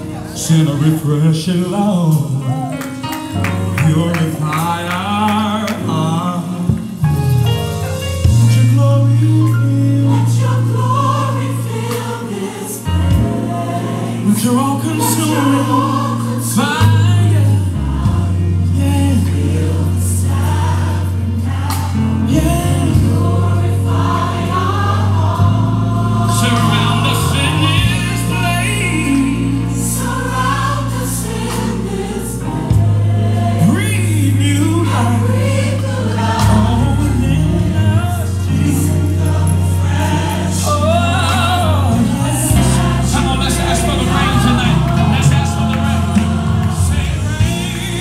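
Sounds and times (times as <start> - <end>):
choir singing gospel song: 0.0 - 48.0
held bass notes: 12.9 - 48.0.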